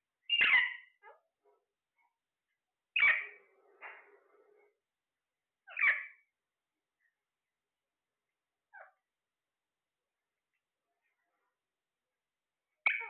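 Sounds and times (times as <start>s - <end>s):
parakeets chirping softly: 0.2s - 4.8s, 5.6s - 7.5s, 8.1s - 9.2s, 10.0s - 11.7s, 12.6s - 13.0s
parakeets squawking: 0.3s - 1.1s, 3.0s - 3.5s, 5.7s - 6.2s.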